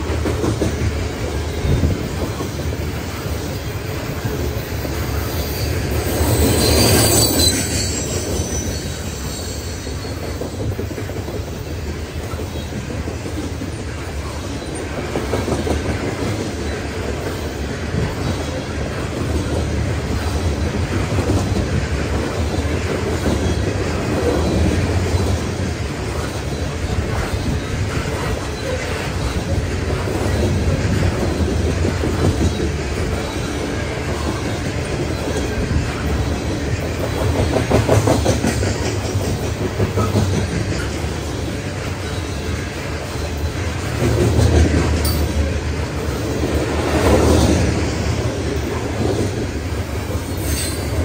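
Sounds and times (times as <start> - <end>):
freight train wheels clattering: 0.0 - 51.0
high-pitched wheel squeal: 5.3 - 10.4.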